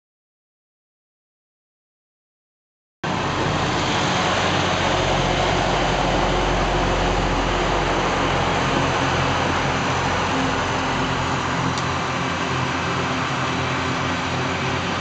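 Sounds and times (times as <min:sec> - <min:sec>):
diesel engines humming: 0:03.0 - 0:15.0
train wheels rumbling on rail: 0:03.1 - 0:15.0.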